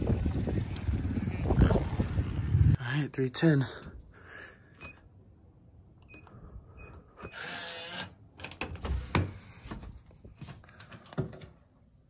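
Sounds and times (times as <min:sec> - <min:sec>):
motorized bolt whirring: 0:07.3 - 0:08.2.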